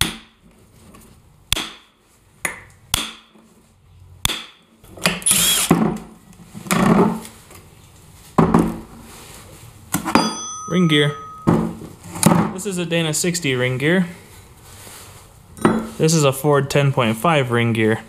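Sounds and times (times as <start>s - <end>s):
metal clanks with ringing: 10.1s - 11.8s.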